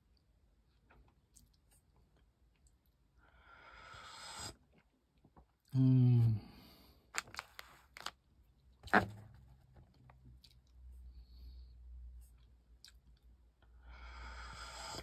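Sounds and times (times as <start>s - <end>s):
person sighing ahh: 5.7s - 6.8s.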